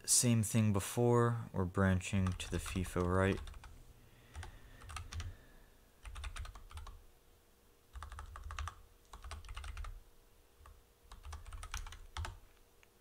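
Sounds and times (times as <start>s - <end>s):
keyboard typing: 2.2s - 5.4s, 6.0s - 7.0s, 7.9s - 10.0s, 10.6s - 12.4s.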